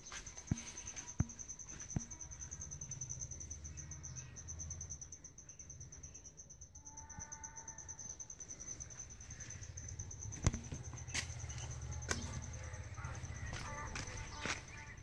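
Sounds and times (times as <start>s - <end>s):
high-pitched insect trill: 0.0s - 15.0s
distant call: 9.4s - 15.0s.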